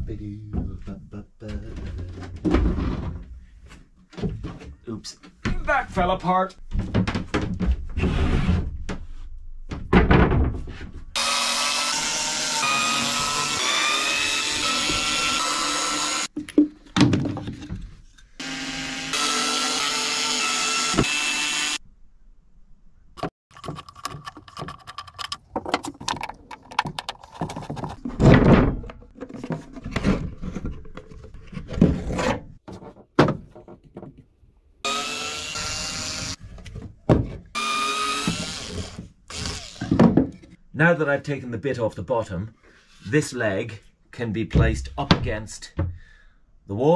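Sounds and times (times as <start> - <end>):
hand tools scraping and knocking wood: 23.2 - 34.2.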